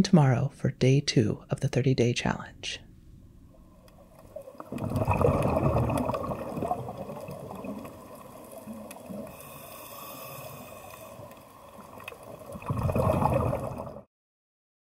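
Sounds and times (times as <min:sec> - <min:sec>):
water washing: 0:04.0 - 0:14.0.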